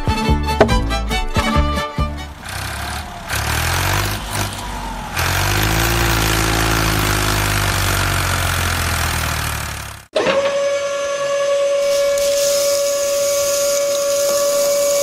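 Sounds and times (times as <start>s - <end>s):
engine running: 0.1s - 10.1s.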